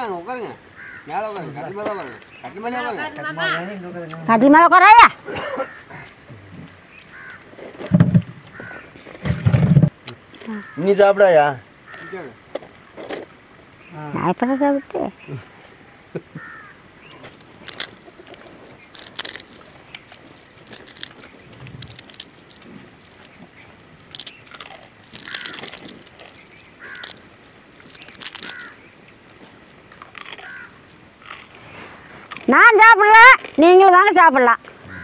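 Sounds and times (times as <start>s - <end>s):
people chewing crisp snacks: 16.4s - 32.5s.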